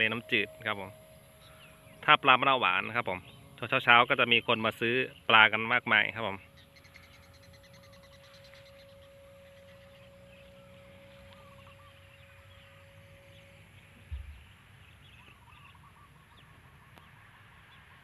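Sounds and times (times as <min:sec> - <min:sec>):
distant birds chirping: 0:00.0 - 0:18.0
low thump: 0:14.0 - 0:14.4.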